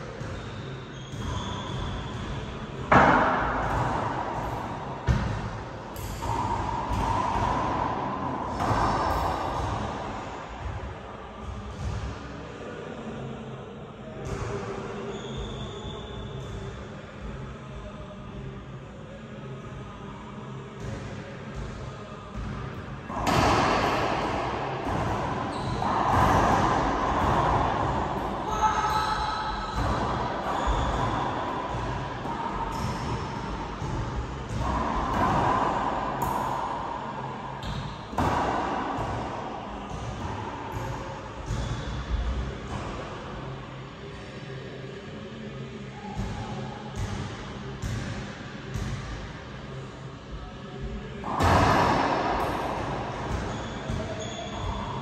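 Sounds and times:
racquets hitting ball: 0:01.1 - 0:10.7, 0:22.3 - 0:36.8, 0:37.6 - 0:43.0, 0:51.3 - 0:54.7.

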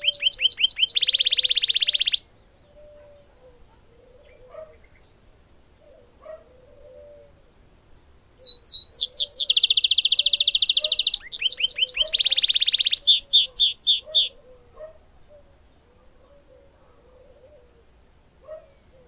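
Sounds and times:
caged songbird singing trills: 0:00.0 - 0:03.2, 0:08.4 - 0:14.4.

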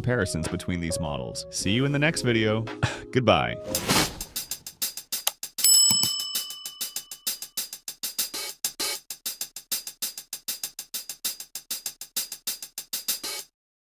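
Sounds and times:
electronic beat with fast hi-hat ticks: 0:07.2 - 0:13.5.

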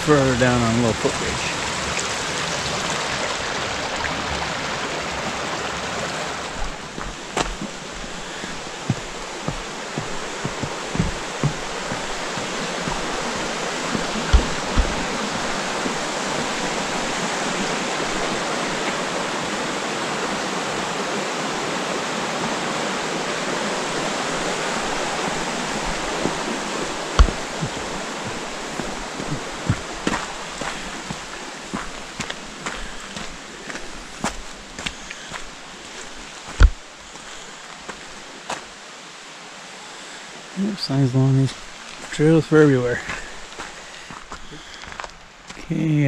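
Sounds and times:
stream rushing over rocks: 0:00.0 - 0:46.0
footsteps on wooden bridge planks: 0:06.4 - 0:19.6, 0:23.9 - 0:38.7, 0:43.0 - 0:45.7.

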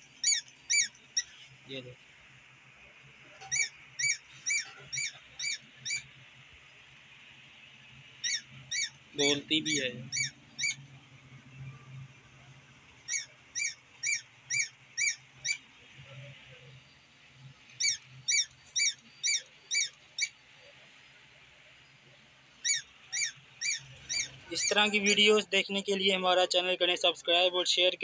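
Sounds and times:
squeaky electronic toy meows: 0:03.5 - 0:06.0, 0:13.1 - 0:15.6.

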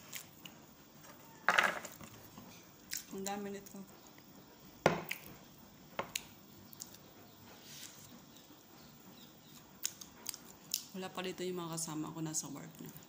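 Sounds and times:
quiet chewing: 0:06.1 - 0:07.1, 0:09.4 - 0:10.9.

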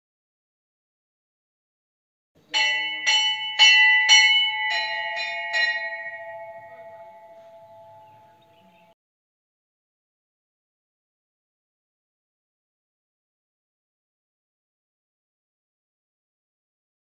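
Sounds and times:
metal bell struck: 0:02.5 - 0:09.0
lower bell note: 0:02.6 - 0:09.0.

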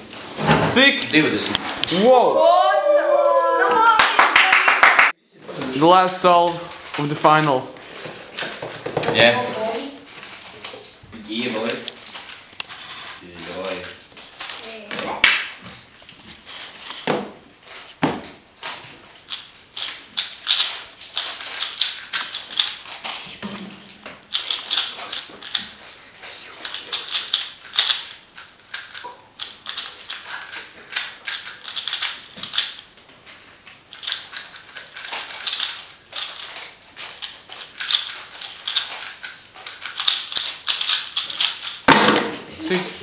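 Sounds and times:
speedcube clicking rattle: 0:13.5 - 0:17.0, 0:18.6 - 0:26.0, 0:26.6 - 0:41.9.

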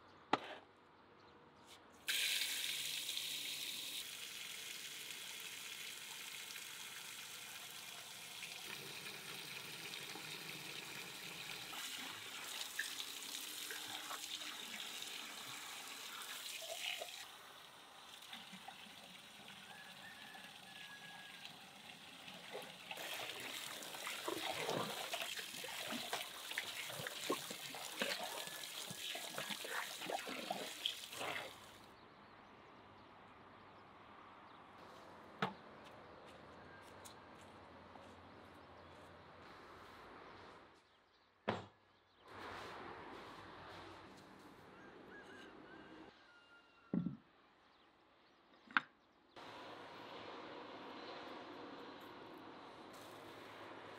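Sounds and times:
tap water running into basin: 0:02.1 - 0:31.7
water splashing and sloshing: 0:21.8 - 0:31.8.

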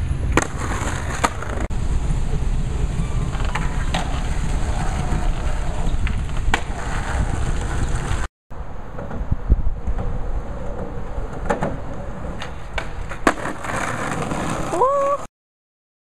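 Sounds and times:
skateboard wheels rolling on concrete: 0:00.0 - 0:15.3
skateboard clacking on ground: 0:03.2 - 0:08.3, 0:08.9 - 0:14.8.

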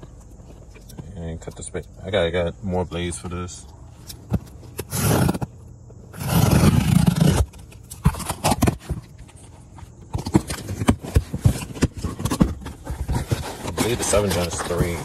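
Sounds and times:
knife slicing packing tape: 0:06.1 - 0:08.8
packing paper rustling: 0:10.3 - 0:15.0.

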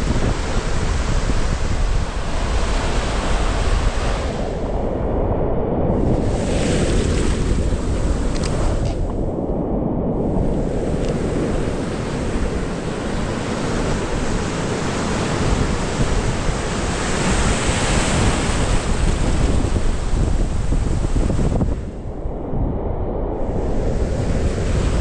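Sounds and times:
ocean surf breaking: 0:00.0 - 0:04.8, 0:05.9 - 0:09.3, 0:10.2 - 0:25.0
wash hissing over sand: 0:10.5 - 0:17.6.

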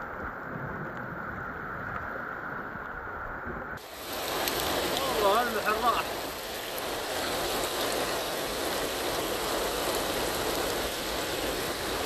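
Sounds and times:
heavy rain: 0:00.0 - 0:12.0
floodwater rushing down street: 0:03.8 - 0:12.0.

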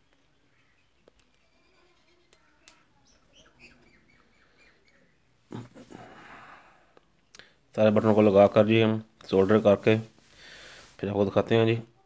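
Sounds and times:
faint bird chirps: 0:00.0 - 0:05.4.

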